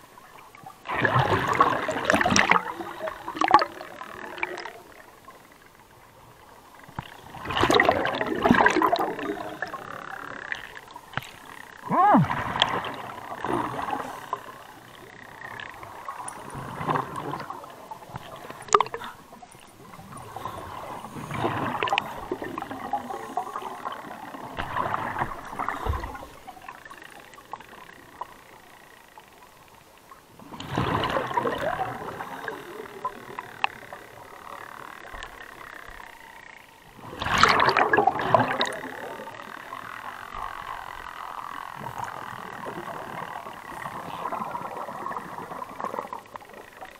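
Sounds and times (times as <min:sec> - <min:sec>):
exhaled bubbles bursting: 0:00.9 - 0:04.8, 0:07.4 - 0:10.6, 0:15.0 - 0:19.1, 0:30.6 - 0:33.4, 0:37.0 - 0:39.3.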